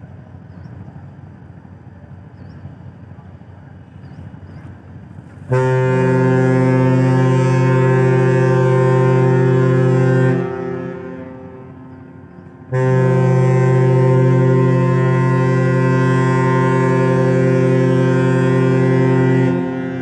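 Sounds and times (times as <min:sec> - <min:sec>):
ship horn long low blasts: 0:05.4 - 0:20.0.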